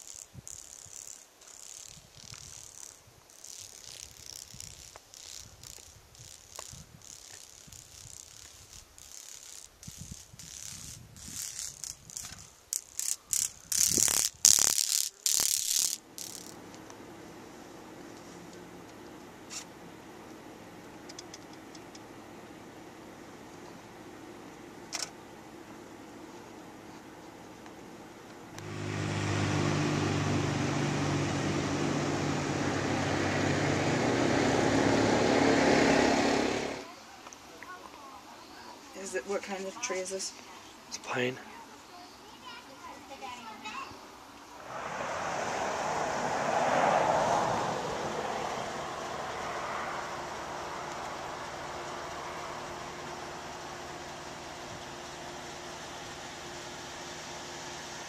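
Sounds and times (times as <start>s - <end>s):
insects buzzing: 0.0s - 58.0s
vehicle engine running: 16.0s - 36.9s, 44.6s - 58.0s.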